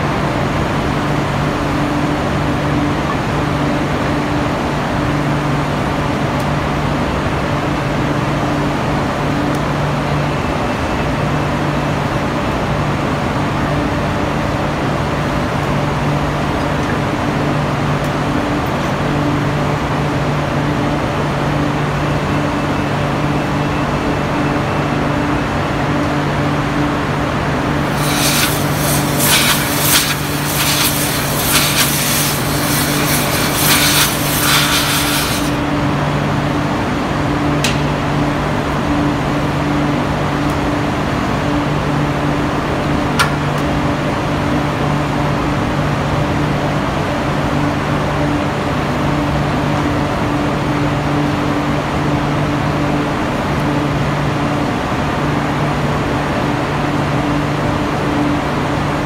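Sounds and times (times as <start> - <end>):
machinery drone with low hum: 0.0 - 59.0
loud sputtering hiss: 27.8 - 35.9.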